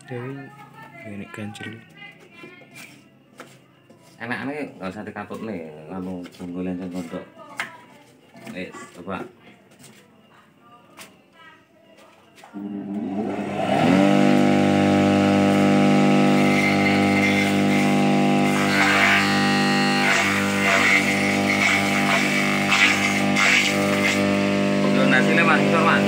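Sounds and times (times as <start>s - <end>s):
electric motor humming: 12.6s - 26.0s.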